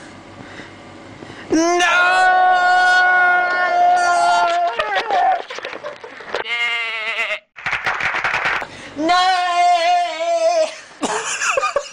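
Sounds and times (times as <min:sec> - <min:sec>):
young man wailing: 0:01.5 - 0:05.6, 0:09.0 - 0:10.9.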